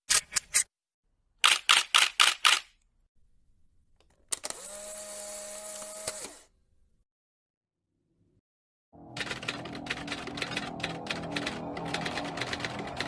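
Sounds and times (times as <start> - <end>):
camera shutter clicks: 1.4 - 2.7.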